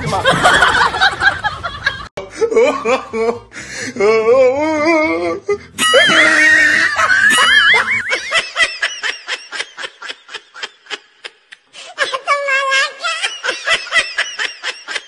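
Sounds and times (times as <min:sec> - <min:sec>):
high-pitched laughter: 0:05.8 - 0:15.0.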